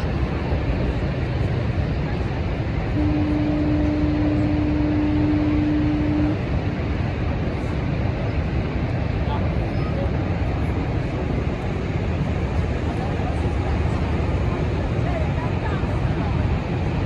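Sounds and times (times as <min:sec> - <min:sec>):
waterfall roar: 0:00.0 - 0:17.0
long horn blast: 0:02.9 - 0:06.6.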